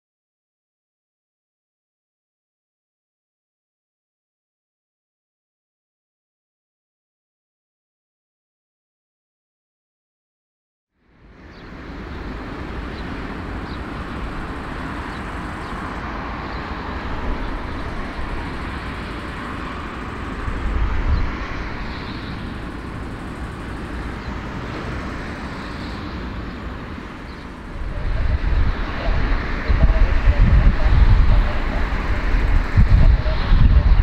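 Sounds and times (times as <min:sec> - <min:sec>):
jet engines roaring at taxi: 0:11.0 - 0:34.0
low rumbles: 0:11.4 - 0:34.0.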